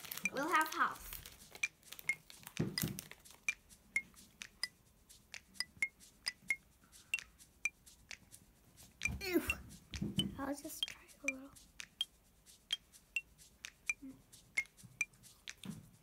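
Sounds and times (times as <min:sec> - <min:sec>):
dull thump: 0:09.9 - 0:10.4.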